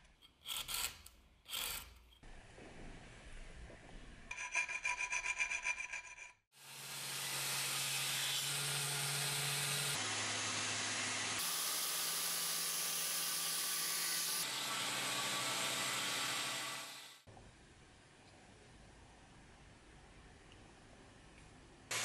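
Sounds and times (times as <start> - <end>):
hand file on steel: 0.0 - 2.2, 4.3 - 6.4.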